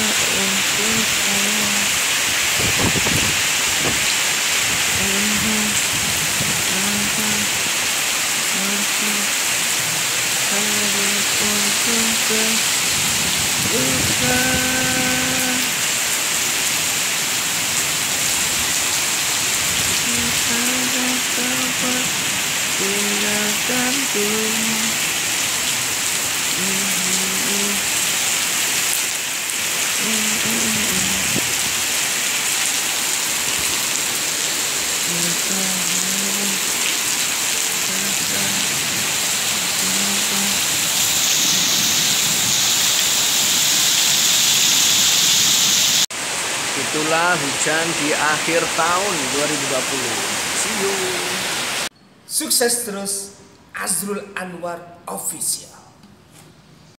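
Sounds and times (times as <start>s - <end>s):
heavy rain on pavement: 0.0s - 51.9s.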